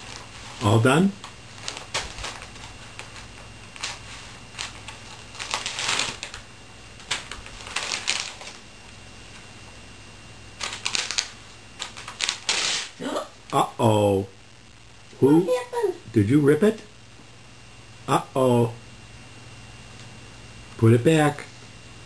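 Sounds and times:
magazine pages rustling: 0:00.0 - 0:06.4, 0:07.0 - 0:08.6, 0:10.6 - 0:12.9.

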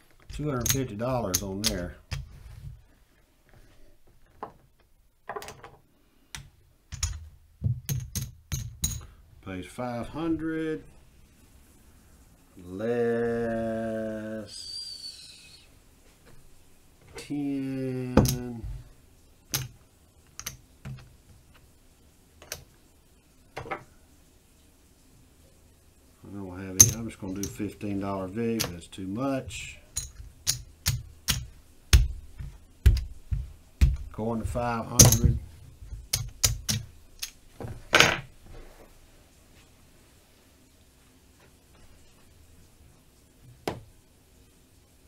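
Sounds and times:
casino chips clicking: 0:19.5 - 0:20.6, 0:29.9 - 0:31.5, 0:36.1 - 0:37.4.

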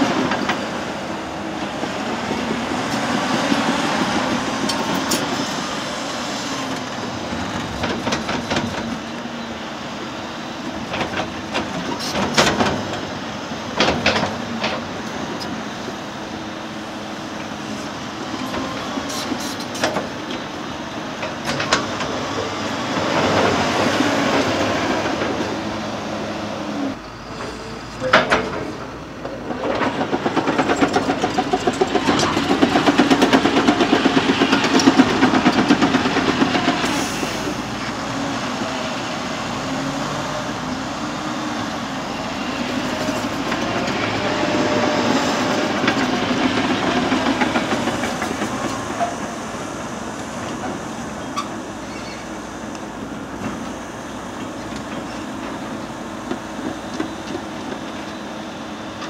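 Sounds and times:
diesel machine running under load: 0:00.0 - 0:59.0
metal clanks and knocks: 0:28.0 - 0:36.9.

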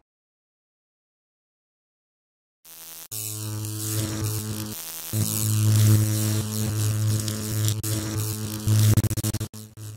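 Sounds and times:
electric mains hum and buzz: 0:02.7 - 0:09.9
crackling static: 0:02.9 - 0:09.9.

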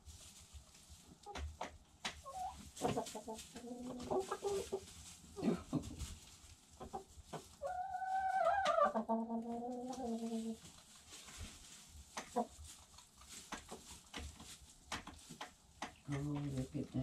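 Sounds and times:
hens clucking: 0:01.0 - 0:05.1, 0:05.8 - 0:14.4.

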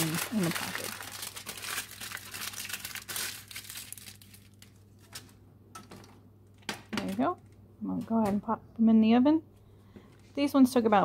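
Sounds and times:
aluminum foil crinkling: 0:00.0 - 0:05.4.

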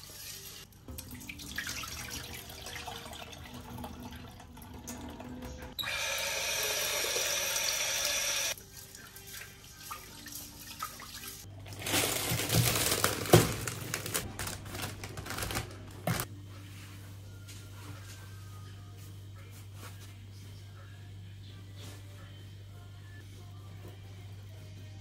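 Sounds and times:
tap water running into pot: 0:00.3 - 0:11.4
plastic bag crinkling: 0:11.6 - 0:16.3.

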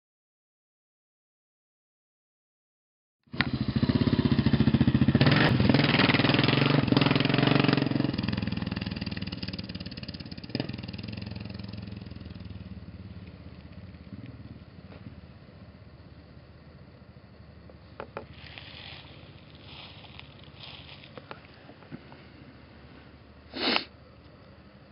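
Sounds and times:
motorcycle engine running: 0:03.3 - 0:16.6, 0:17.7 - 0:21.4.

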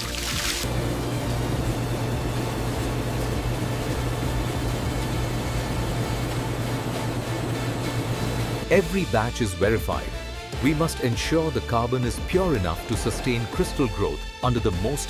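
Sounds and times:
industrial machine hum: 0:00.6 - 0:08.8.

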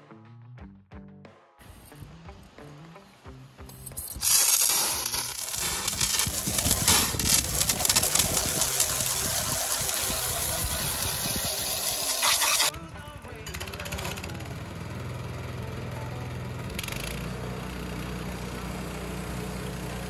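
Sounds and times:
gas engine under load: 0:03.8 - 0:12.7, 0:13.4 - 0:20.0
band saw blade cutting wood: 0:03.9 - 0:12.7.

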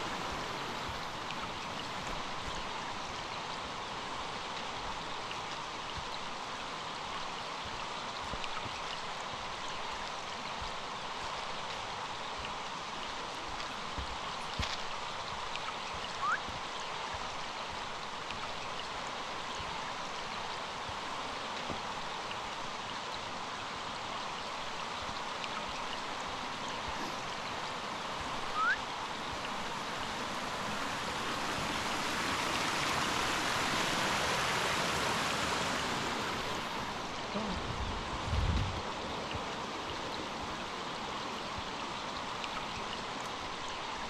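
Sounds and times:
stream rushing over rocks: 0:00.0 - 0:44.0.

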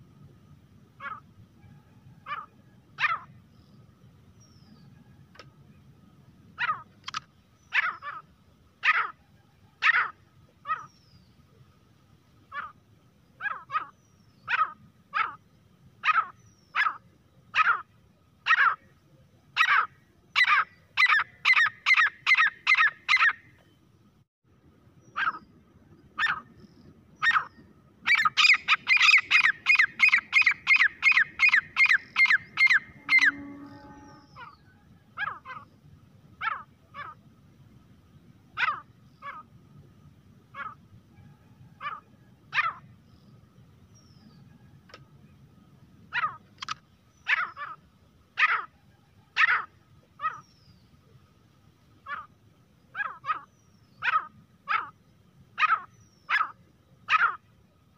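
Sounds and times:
francolin calling: 0:19.6 - 0:23.5, 0:25.0 - 0:35.8.

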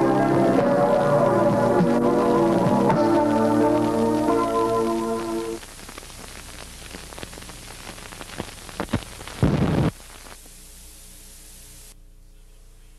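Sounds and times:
closing music: 0:00.0 - 0:05.6
burst of static: 0:00.0 - 0:12.0
videotape hiss and crackle: 0:00.0 - 0:12.9.

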